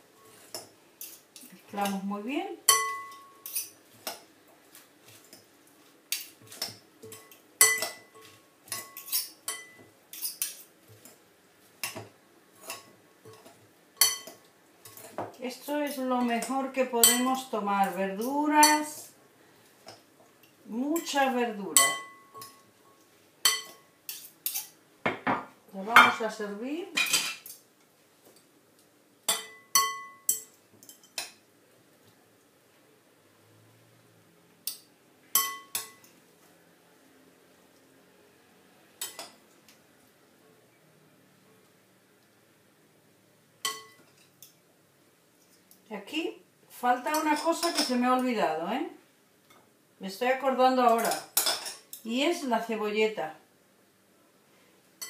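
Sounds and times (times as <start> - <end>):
cutlery clinking on glass bowl: 2.7 - 4.3, 6.1 - 11.2, 11.8 - 15.3, 21.8 - 26.2, 29.3 - 31.4, 34.6 - 36.1, 39.0 - 39.4, 43.6 - 44.5, 47.1 - 48.0, 50.9 - 52.0
utensils clinking on glass bowl: 6.1 - 10.6.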